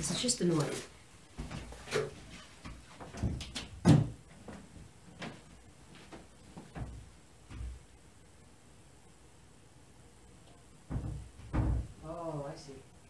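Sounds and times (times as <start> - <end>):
knocks and thumps of movement: 1.3 - 7.9, 10.9 - 12.0.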